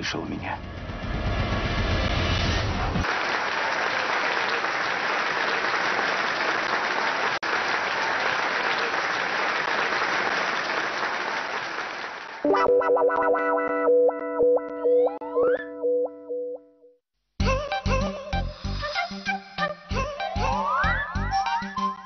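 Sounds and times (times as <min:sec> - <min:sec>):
crowd applauding: 0:02.8 - 0:12.6
synthesizer music with held chords: 0:12.4 - 0:16.8, 0:17.4 - 0:22.0.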